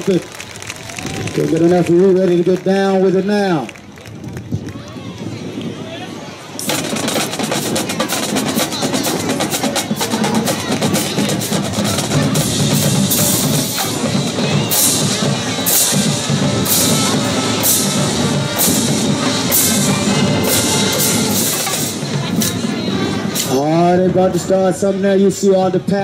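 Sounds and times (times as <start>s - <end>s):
rapid drum strokes: 6.6s - 24.2s.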